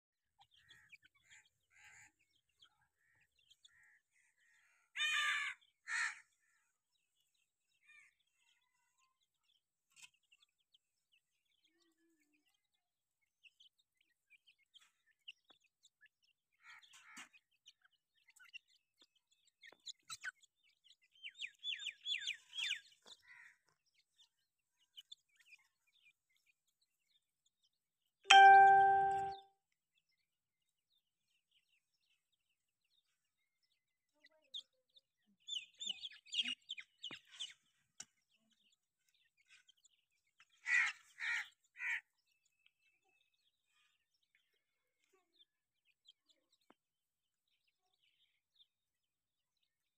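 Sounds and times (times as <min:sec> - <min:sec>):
young birds chirping: 0:19.4 - 0:26.5, 0:35.4 - 0:43.3
chime-like ding: 0:28.3 - 0:29.4.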